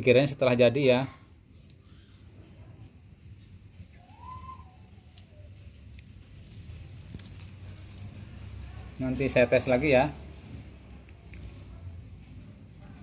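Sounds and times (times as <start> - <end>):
hands handling wiring: 1.6 - 11.8.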